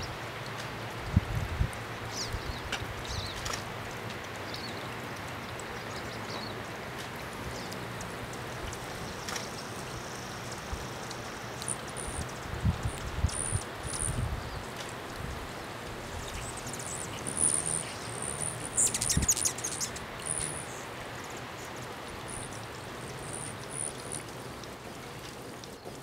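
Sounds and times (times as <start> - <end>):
hummingbird chirps: 2.1 - 3.4, 8.9 - 14.6, 15.6 - 24.7.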